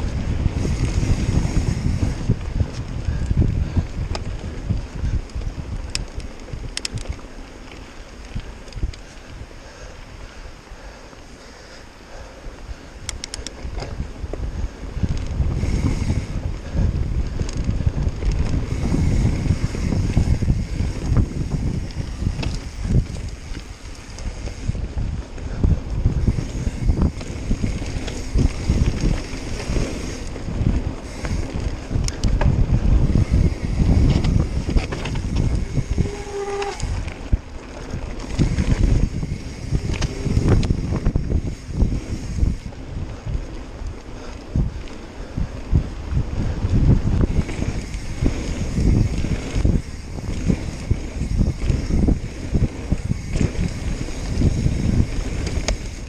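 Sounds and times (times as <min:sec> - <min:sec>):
bike ticks and rattles: 0:00.0 - 0:56.0
wind buffeting microphone: 0:00.0 - 0:56.0
tyres rumbling on dirt: 0:13.6 - 0:56.0.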